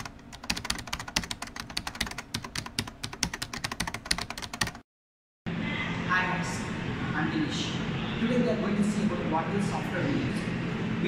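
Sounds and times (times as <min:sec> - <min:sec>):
fast keyboard typing: 0:00.0 - 0:04.8.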